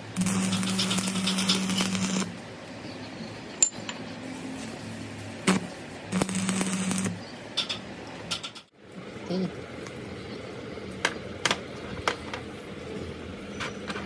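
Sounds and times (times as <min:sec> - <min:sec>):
electrical buzz: 0:00.0 - 0:02.4, 0:04.4 - 0:07.2
welding arc crackling: 0:00.0 - 0:02.4, 0:04.2 - 0:07.2.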